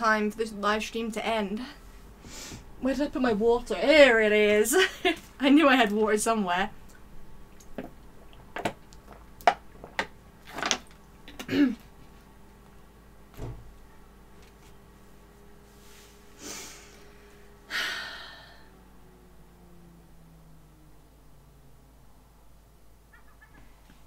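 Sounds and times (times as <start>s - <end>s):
wet clicks: 6.8s - 10.2s
breathy rushes: 15.8s - 19.2s.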